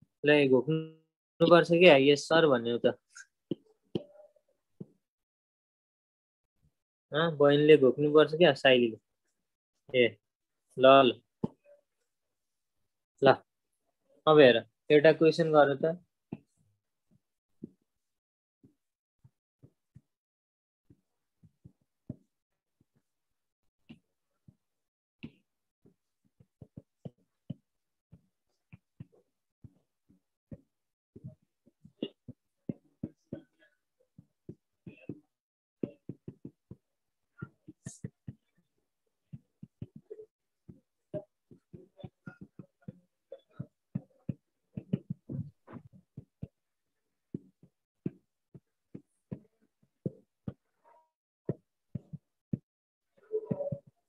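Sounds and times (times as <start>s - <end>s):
stylus tapping on tablet: 30.5s - 33.6s, 34.2s - 38.6s, 39.3s - 46.6s, 47.3s - 50.7s.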